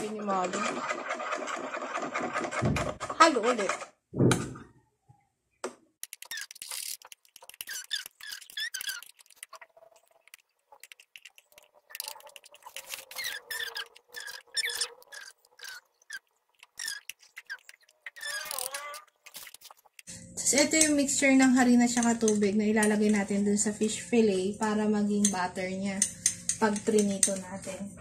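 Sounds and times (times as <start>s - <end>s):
spoon scraping ceramic bowl: 6.0s - 20.1s.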